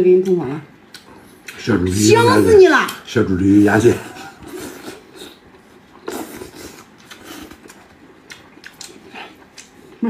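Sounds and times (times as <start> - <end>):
wet chewing and lip smacks: 0.2 - 1.7, 4.8 - 10.0.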